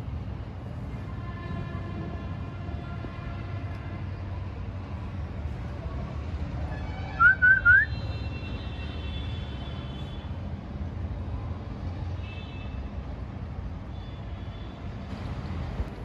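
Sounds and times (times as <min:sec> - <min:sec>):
low traffic rumble: 0:00.0 - 0:16.0.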